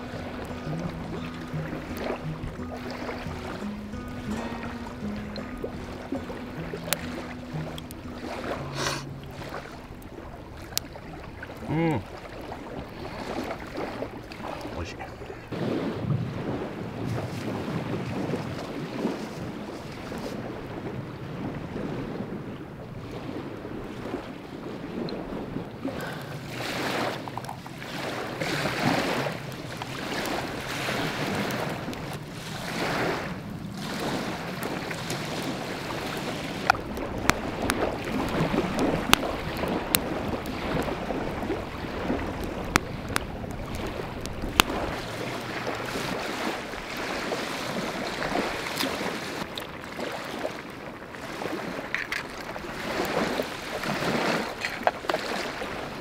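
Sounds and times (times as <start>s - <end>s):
wood fire crackling: 0.0s - 15.7s, 29.4s - 49.4s
waves washing onto gravel shore: 0.0s - 56.0s
wind on microphone: 0.0s - 56.0s.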